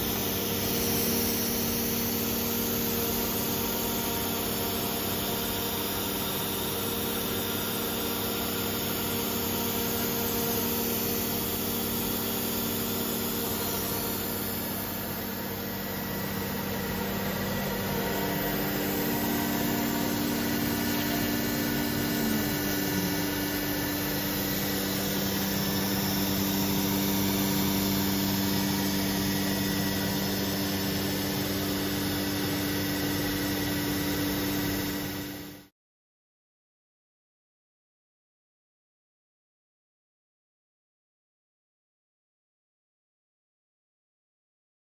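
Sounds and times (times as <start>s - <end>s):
router spindle drone: 0.0s - 35.5s
vacuum pump drone: 0.0s - 35.7s
cutting hiss: 17.8s - 29.3s.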